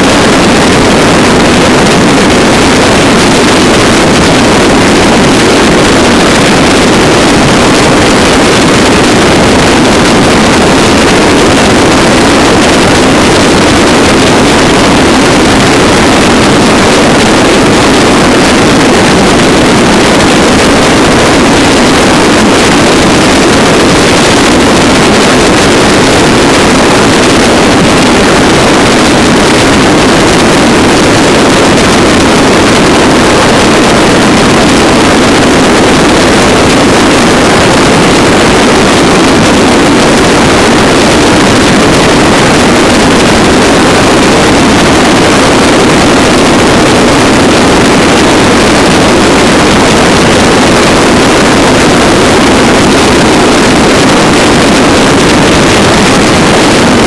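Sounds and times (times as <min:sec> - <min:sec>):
wind on microphone: 0:00.0 - 0:57.0.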